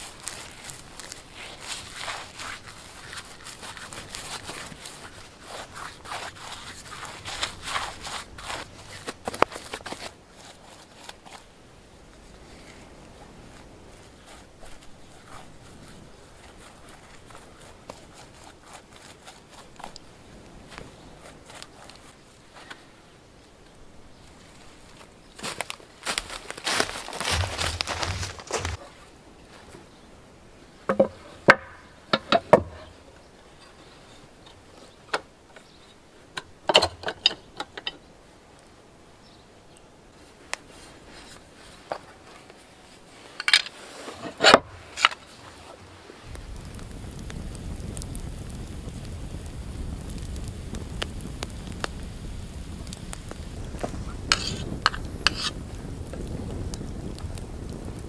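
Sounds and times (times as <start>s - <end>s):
campfire crackling: 0.0s - 32.1s, 36.1s - 58.0s
low rumble of flame: 27.0s - 28.8s, 46.1s - 58.0s.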